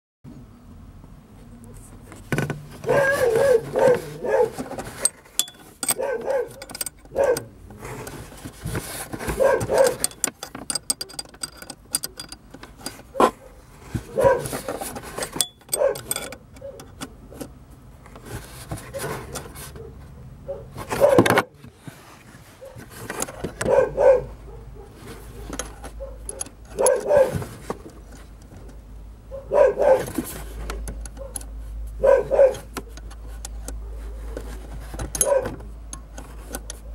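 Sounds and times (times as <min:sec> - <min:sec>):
dog barking: 0:02.8 - 0:04.6, 0:05.9 - 0:07.5, 0:09.3 - 0:10.0, 0:13.1 - 0:14.7, 0:15.7 - 0:16.8, 0:19.8 - 0:21.3, 0:22.6 - 0:22.8, 0:23.6 - 0:25.4, 0:26.0 - 0:27.4, 0:29.3 - 0:30.1, 0:31.2 - 0:31.4, 0:32.0 - 0:32.7, 0:35.2 - 0:35.6
wrench clicking and clinking: 0:05.0 - 0:07.5, 0:09.6 - 0:13.1, 0:15.3 - 0:17.0, 0:35.1 - 0:36.8.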